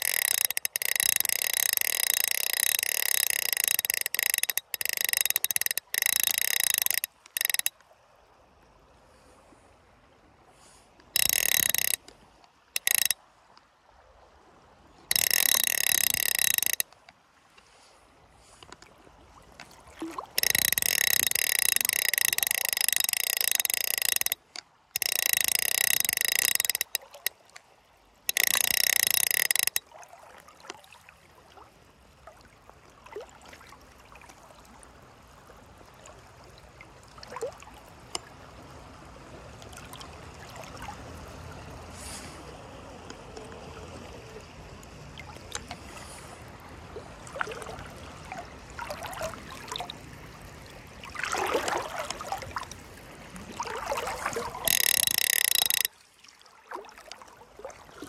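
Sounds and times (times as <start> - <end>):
fly reel ratcheting: 0.0 - 7.8, 11.2 - 12.2, 12.8 - 13.2, 15.1 - 17.1, 20.4 - 27.4, 28.3 - 29.9, 53.6 - 56.0.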